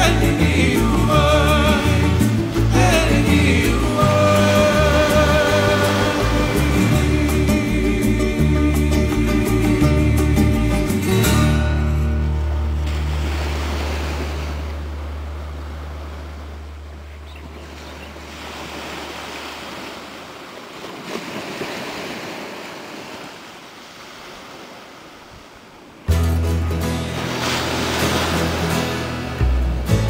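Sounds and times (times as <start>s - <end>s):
small waves washing on beach: 0.0s - 9.8s, 12.3s - 29.8s
music: 0.0s - 13.7s, 26.1s - 30.0s.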